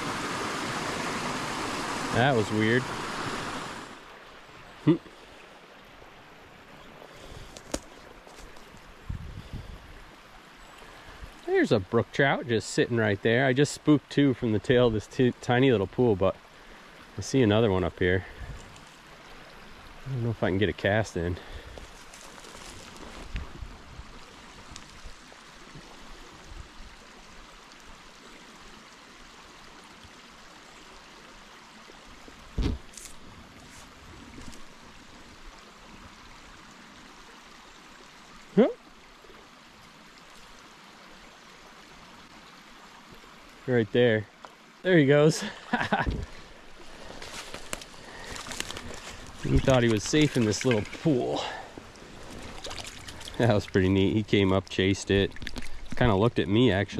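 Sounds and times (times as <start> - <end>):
brook water rushing: 0.0 - 56.9.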